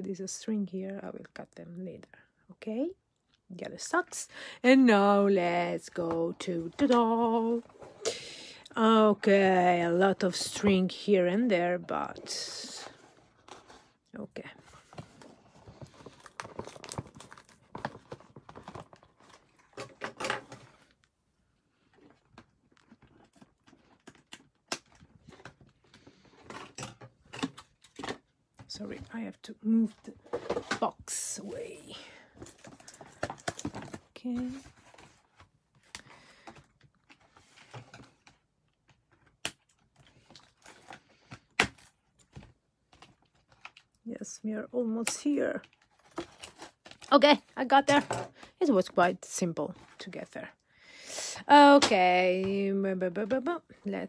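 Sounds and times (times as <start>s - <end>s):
cardboard and plastic rustling: 5.0s - 8.1s, 8.8s - 21.1s, 21.7s - 43.9s, 45.2s - 50.6s
plastic packaging crinkling: 15.5s - 20.9s.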